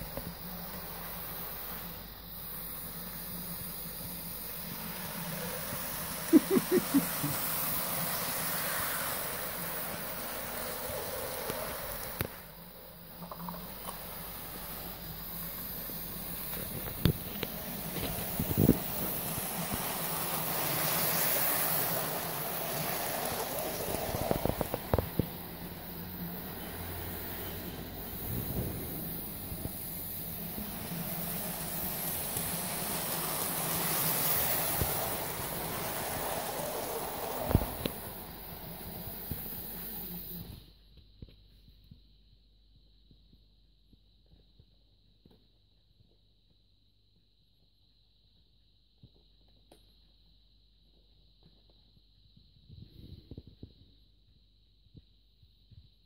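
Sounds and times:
model train motor whirring: 0:00.0 - 0:40.6
wheels rolling on rails: 0:00.0 - 0:40.6.

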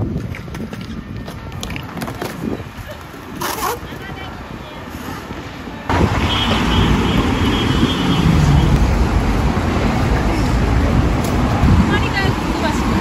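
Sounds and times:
cars passing with low rumble: 0:04.0 - 0:13.0.

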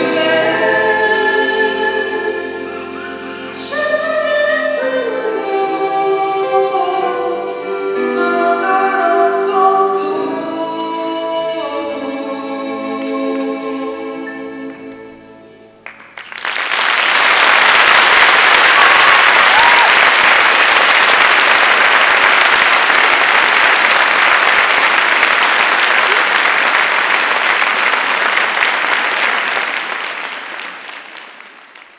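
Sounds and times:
audience applause: 0:15.8 - 0:31.9.

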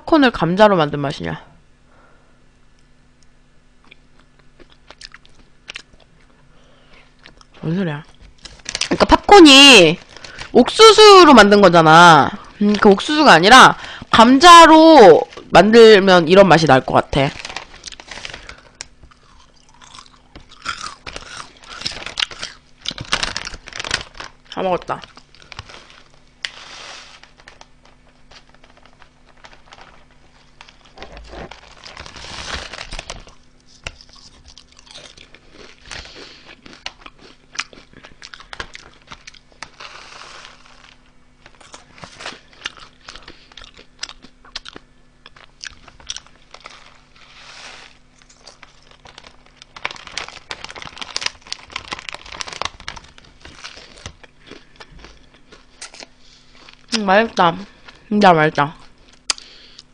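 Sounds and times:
potato chips crunched and chewed: 0:03.8 - 0:06.3, 0:07.2 - 0:10.8, 0:17.2 - 0:58.0
foil chip bag crinkling: 0:07.2 - 0:58.1.

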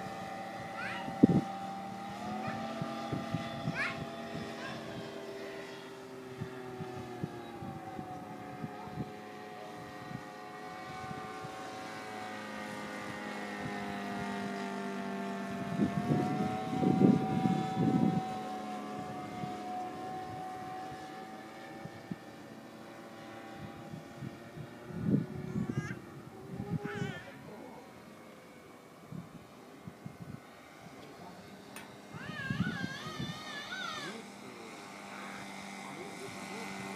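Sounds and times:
biplane engine and propeller overhead: 0:00.0 - 0:36.9.

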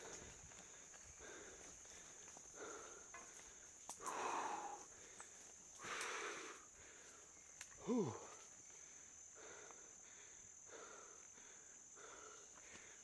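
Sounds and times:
heavy breathing: 0:00.0 - 0:13.0
insect trill: 0:00.0 - 0:13.0
person groaning: 0:07.8 - 0:08.2.

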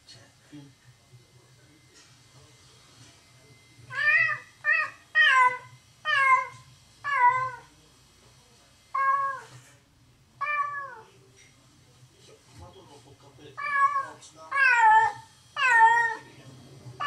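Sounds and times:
cat meowing loudly: 0:10.4 - 0:11.1.

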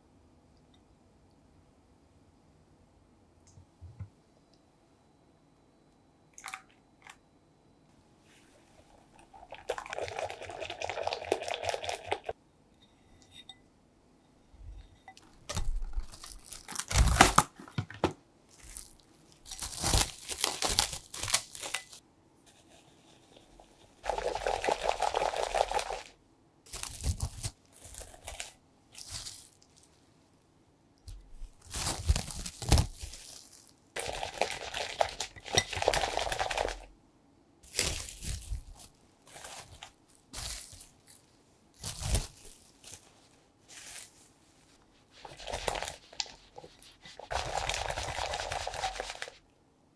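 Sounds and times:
cling film crinkling: 0:15.5 - 0:17.8, 0:18.5 - 0:22.0, 0:26.7 - 0:29.9, 0:31.1 - 0:36.9, 0:37.6 - 0:49.4.

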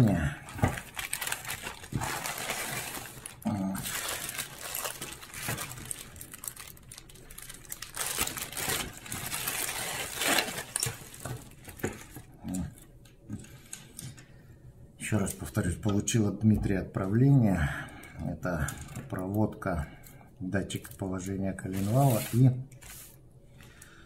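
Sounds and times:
plastic packaging crinkling: 0:00.5 - 0:12.4.

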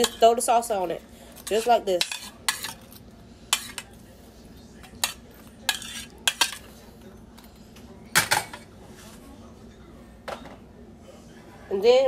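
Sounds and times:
spoon clinking on metal saucepan: 0:01.4 - 0:03.9, 0:04.9 - 0:06.6.

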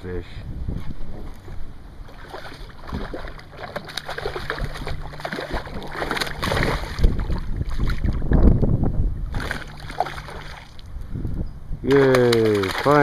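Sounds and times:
low steady hum: 0:00.0 - 0:13.0
fish splashing in water: 0:02.0 - 0:08.3, 0:09.3 - 0:10.9, 0:11.9 - 0:13.0.

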